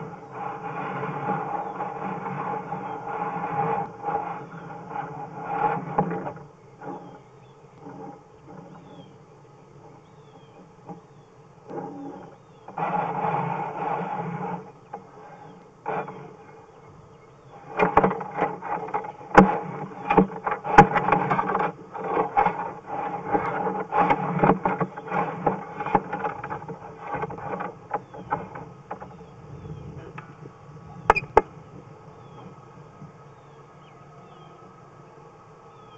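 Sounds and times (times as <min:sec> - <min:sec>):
cable knocking and scraping in pipe: 0:00.0 - 0:07.2, 0:17.6 - 0:29.2
steady hum: 0:00.0 - 0:35.9.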